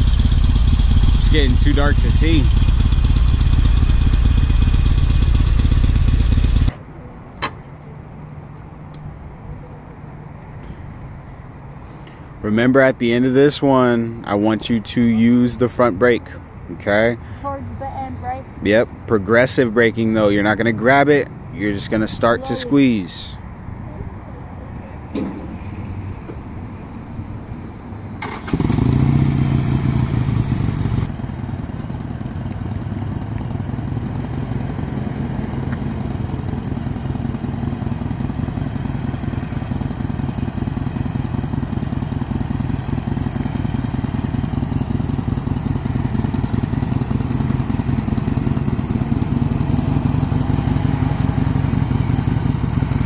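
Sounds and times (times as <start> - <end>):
motorcycle engine running: 0.0 - 6.7, 28.3 - 53.0.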